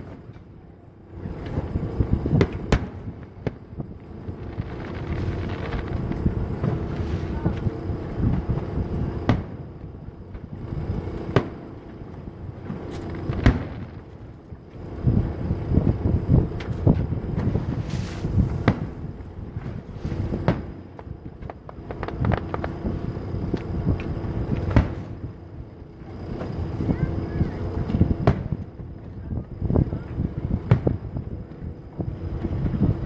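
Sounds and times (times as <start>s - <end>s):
firework shells bursting: 12.6s - 14.4s, 15.1s - 25.3s.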